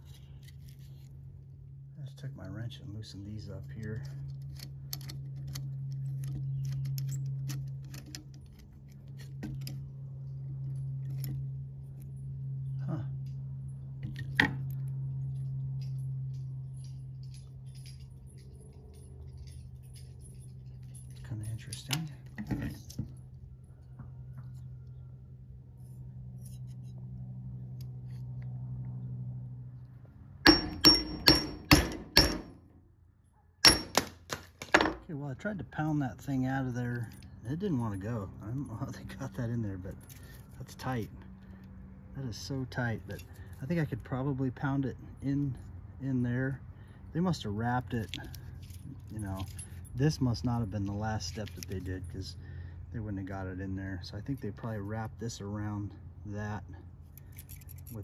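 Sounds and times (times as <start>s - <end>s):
small metallic clicks and scrapes: 0.0s - 1.5s, 2.2s - 12.2s, 13.2s - 23.4s, 25.8s - 29.0s, 38.5s - 44.2s, 47.8s - 52.2s, 57.0s - 58.0s
steady low hum: 0.0s - 58.0s
hammer strikes on metal: 30.4s - 32.7s, 33.6s - 35.0s.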